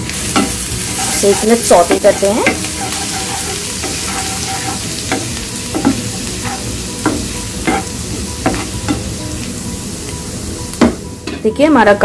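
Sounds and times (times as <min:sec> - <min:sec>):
garlic sizzling in hot oil: 0:00.0 - 0:12.0
spatula scraping a pan: 0:00.2 - 0:09.0.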